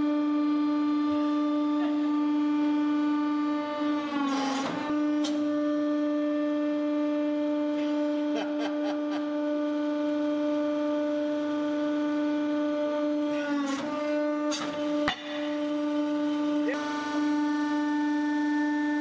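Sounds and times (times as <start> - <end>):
hydraulic press pump droning: 0.0 - 19.0.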